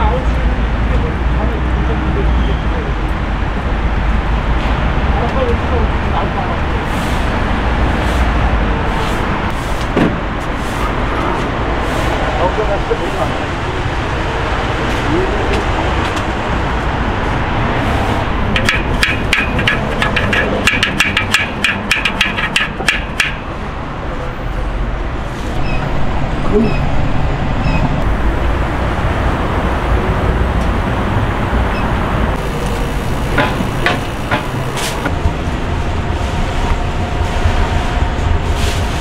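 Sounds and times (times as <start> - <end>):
steady noisy rumble: 0.0 - 39.0.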